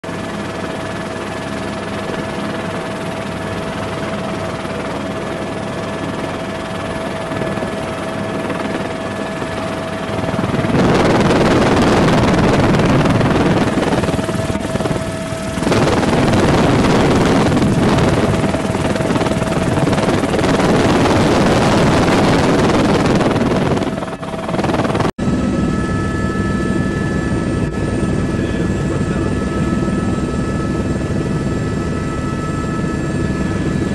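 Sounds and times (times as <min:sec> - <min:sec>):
aircraft rotor and engine noise: 0:00.0 - 0:33.9
helicopter cabin drone: 0:00.0 - 0:33.9
loud rushing noise: 0:10.3 - 0:24.0.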